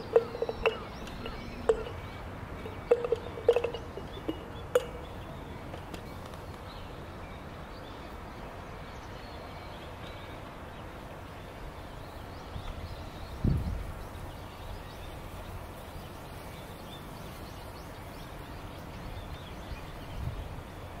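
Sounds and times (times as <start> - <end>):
pestle clinking glass jar: 0.0 - 5.2
faint background hiss: 0.0 - 21.0.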